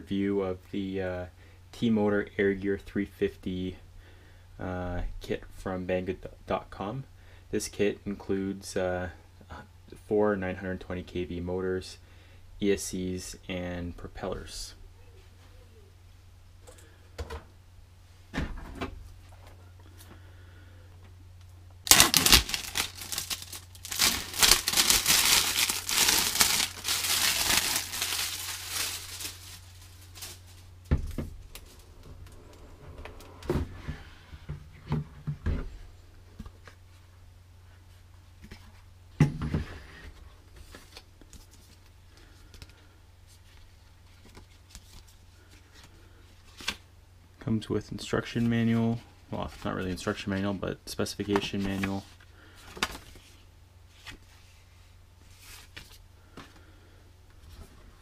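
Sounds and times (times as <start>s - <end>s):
faint low hum: 0.0s - 58.0s
plastic wrapping crinkling: 21.8s - 30.7s
paper card rustling: 21.9s - 30.6s.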